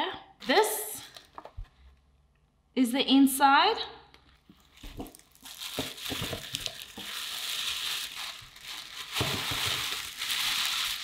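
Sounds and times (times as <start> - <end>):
tissue paper rustling: 4.6 - 11.0.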